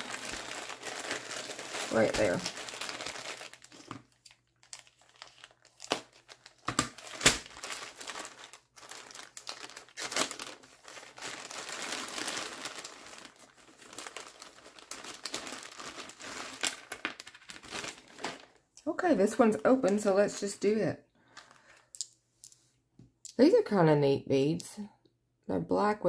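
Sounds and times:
plastic bags crinkling: 0:00.0 - 0:18.6.

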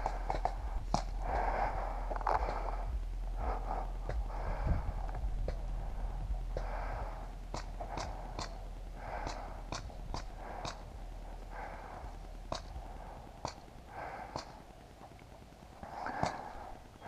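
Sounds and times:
person breathing heavily: 0:00.0 - 0:14.9, 0:15.8 - 0:17.0
sharp clicks: 0:07.4 - 0:17.0.

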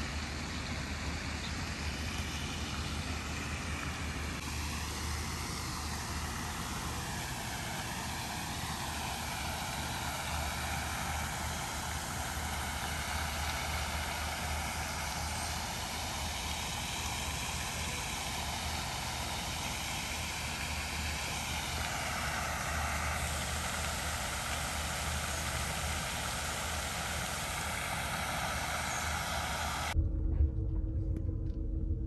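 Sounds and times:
fountain water spraying: 0:00.0 - 0:30.0
low rumble: 0:29.9 - 0:32.0.

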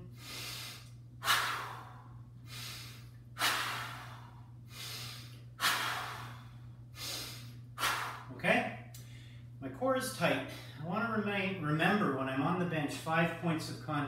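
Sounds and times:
man breathing forcefully: 0:00.0 - 0:08.4.

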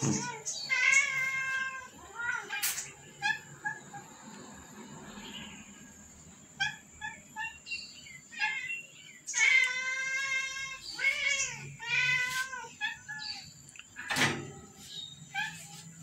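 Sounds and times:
cats and kittens meowing: 0:00.0 - 0:05.0, 0:06.4 - 0:16.0.

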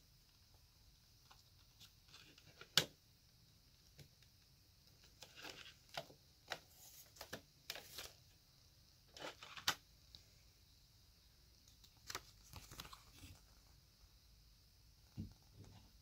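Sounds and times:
paper rustling: 0:05.0 - 0:08.2, 0:11.8 - 0:13.6.

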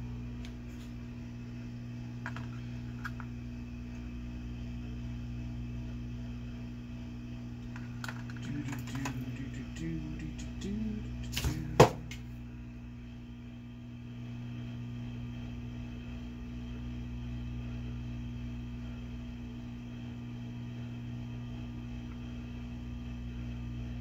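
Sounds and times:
low electrical hum: 0:00.0 - 0:24.0.

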